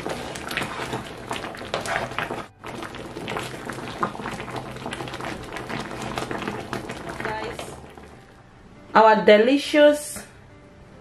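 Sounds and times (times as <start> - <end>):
spatula stirring soup: 0.0 - 8.2
thick soup bubbling: 0.0 - 8.4
background music: 0.0 - 11.0.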